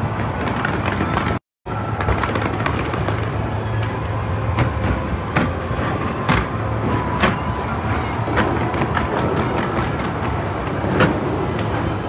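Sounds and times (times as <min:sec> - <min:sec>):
rumble of firework bursts: 0:00.0 - 0:12.0
sharp firework bangs: 0:04.4 - 0:12.0.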